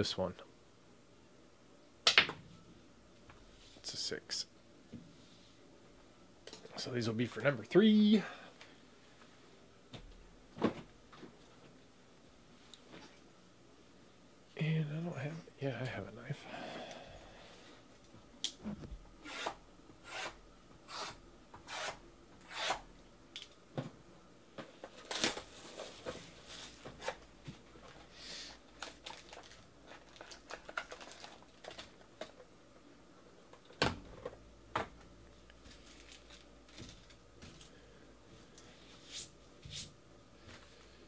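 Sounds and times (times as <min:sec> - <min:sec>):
foil packs rustling and crinkling: 0:24.8 - 0:32.4, 0:35.6 - 0:37.7.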